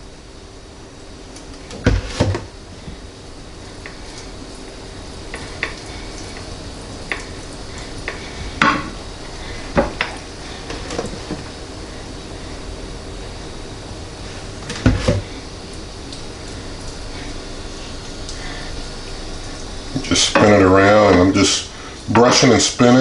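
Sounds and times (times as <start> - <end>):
sharp knocks on countertop: 8.6 - 9.0.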